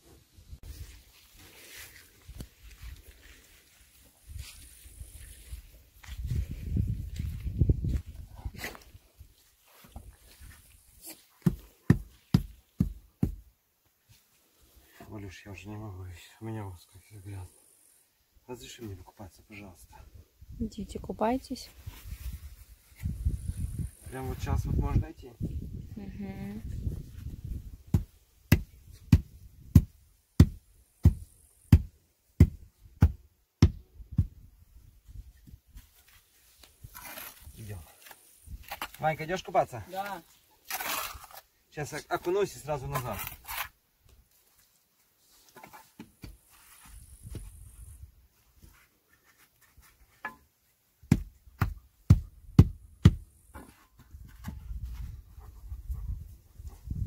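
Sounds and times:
rubber mallet knocking stone: 27.9 - 34.3, 51.1 - 53.2
wooden board scraping wet concrete: 40.0 - 41.5.

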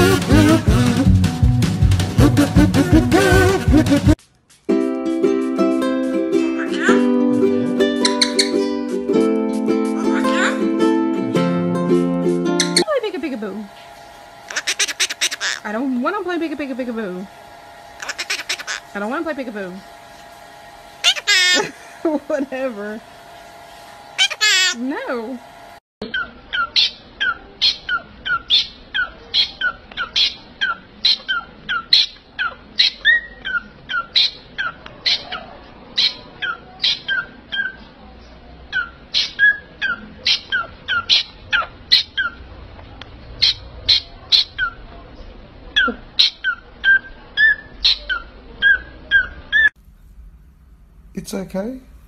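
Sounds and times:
parrot calling: 6.4 - 7.1, 8.0 - 8.7, 10.0 - 10.8, 14.4 - 15.8, 17.9 - 19.0, 21.0 - 22.1, 24.2 - 24.8, 26.0 - 37.9, 38.7 - 42.5, 43.4 - 44.9, 45.8 - 49.8.

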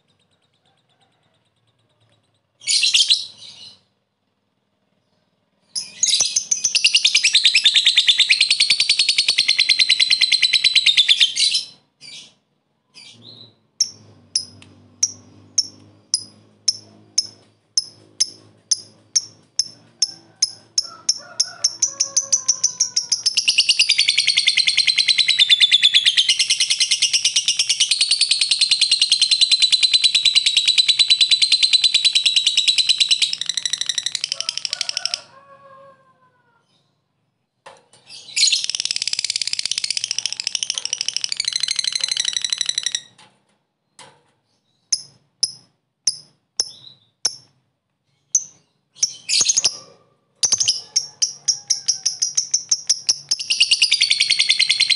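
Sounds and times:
lovebird chattering trill: 5.8 - 11.8, 13.8 - 34.8, 38.3 - 43.1, 50.4 - 54.9
lovebird sharp chirps: 38.1 - 43.2, 44.8 - 47.5, 48.3 - 49.8, 50.4 - 51.1, 52.0 - 54.9.

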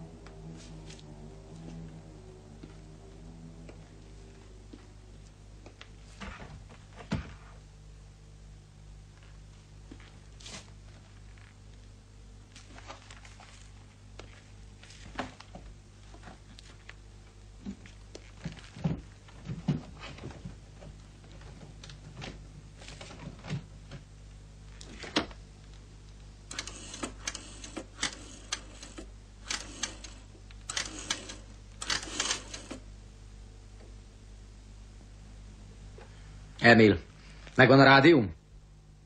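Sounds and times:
steady low hum: 0.0 - 39.0
quick mechanical clicking bursts: 26.5 - 32.8.

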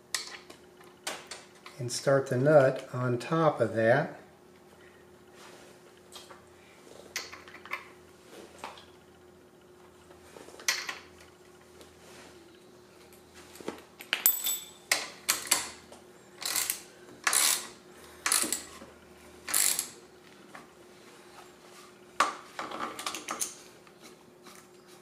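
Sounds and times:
ratchet wrench clicking: 16.4 - 18.7, 19.5 - 20.0.

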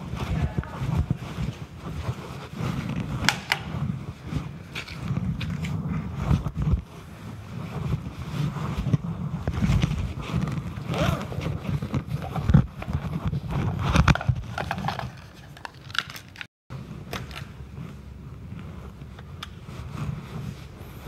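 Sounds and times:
microphone handling noise: 0.0 - 15.2
rustling: 0.0 - 21.0.

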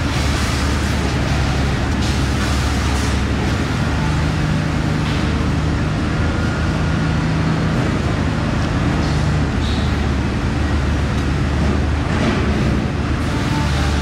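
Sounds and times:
loud mechanical drone: 0.0 - 14.0
noisy background wash: 0.0 - 14.0.

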